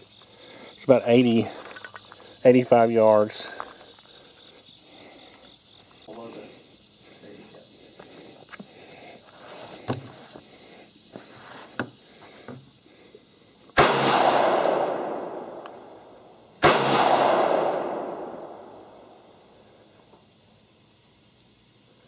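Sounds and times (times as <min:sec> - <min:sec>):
pistol shots with echo: 0:13.8 - 0:15.6, 0:16.6 - 0:18.9.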